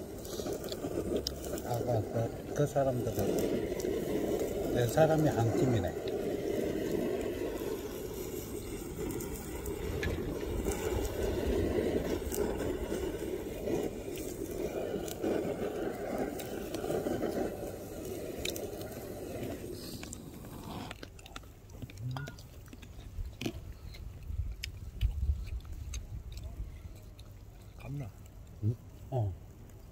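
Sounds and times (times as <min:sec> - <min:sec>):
gas torch flame rushing: 0:00.0 - 0:21.0.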